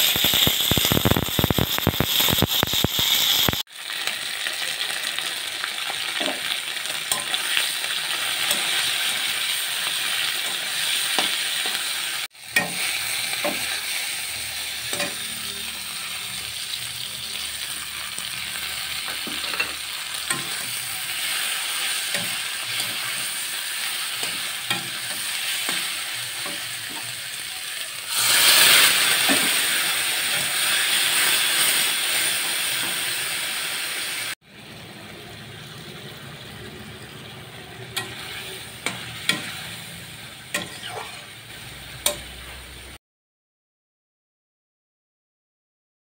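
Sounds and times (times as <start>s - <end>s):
meat sizzling in hot oil: 0.0s - 34.7s, 35.5s - 43.0s
metal spatula scraping wok: 6.1s - 33.3s, 37.0s - 42.9s.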